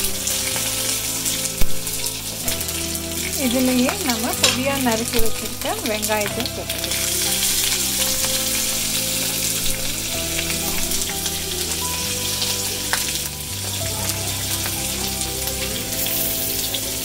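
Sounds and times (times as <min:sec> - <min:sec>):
background music: 0:00.0 - 0:17.0
oil sizzling in a pan: 0:00.0 - 0:17.0.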